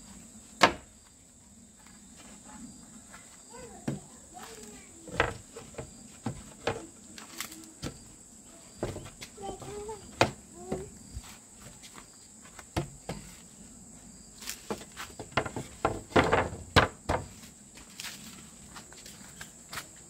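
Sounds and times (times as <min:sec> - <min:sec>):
high insect drone: 0:00.0 - 0:20.0
knocks and clatter of materials: 0:05.1 - 0:07.0, 0:14.6 - 0:17.4.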